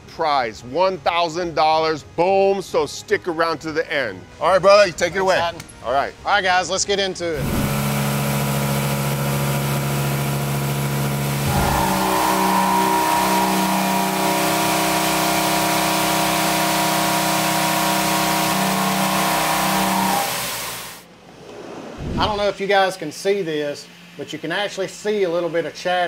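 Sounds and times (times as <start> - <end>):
milling cutter whining in metal: 7.4 - 21.0.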